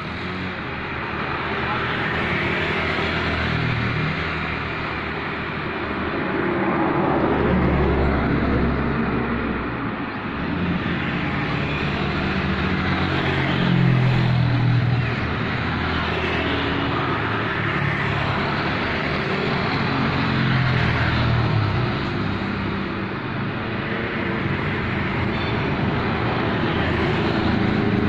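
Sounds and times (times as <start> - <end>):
vehicles passing by: 0.0 - 28.0.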